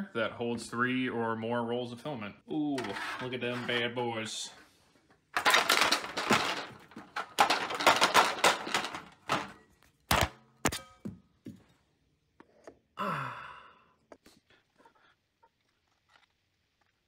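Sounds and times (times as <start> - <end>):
steel plate rattle and rustle: 2.8 - 4.1, 5.1 - 9.7.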